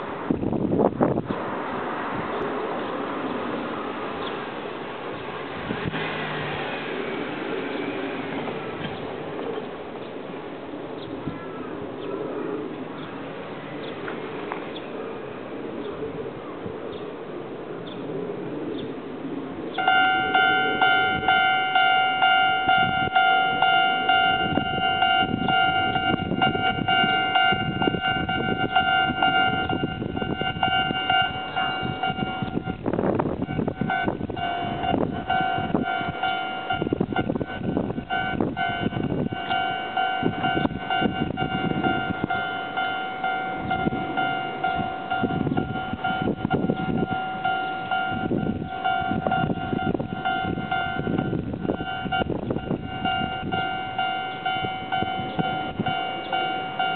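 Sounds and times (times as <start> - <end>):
wind buffeting microphone: 0.0 - 56.9
level crossing warning bell: 19.8 - 56.9.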